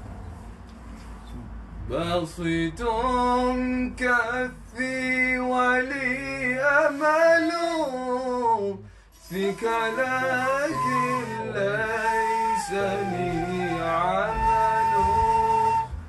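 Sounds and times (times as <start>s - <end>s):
person singing unaccompanied: 9.3s - 15.8s.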